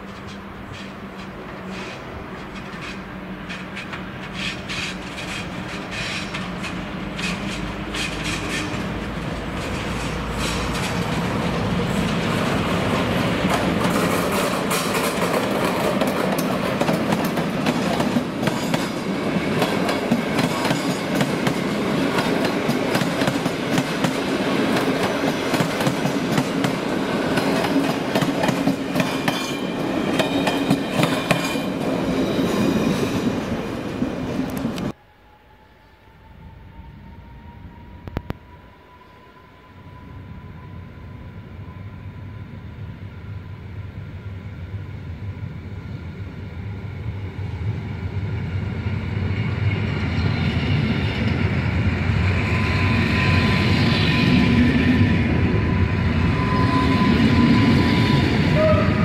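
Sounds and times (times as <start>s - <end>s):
wheels clattering over rail joints: 0.0s - 26.8s
train coaches rumbling: 0.0s - 35.0s, 36.0s - 59.0s.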